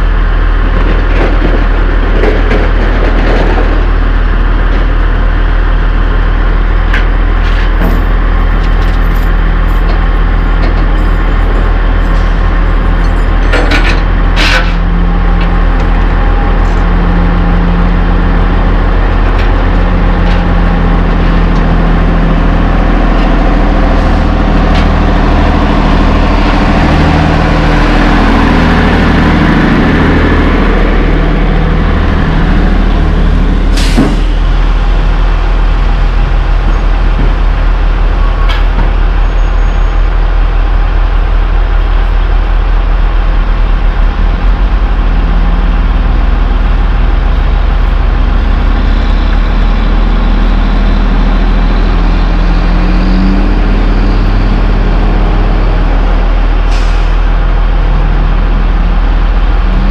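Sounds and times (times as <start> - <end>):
diesel trucks running: 0.0 - 59.9
air brake hiss: 33.7 - 34.3.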